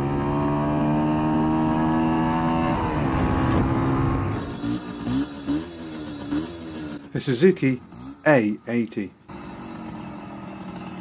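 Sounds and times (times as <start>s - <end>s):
motorcycle engine running: 3.0s - 11.0s.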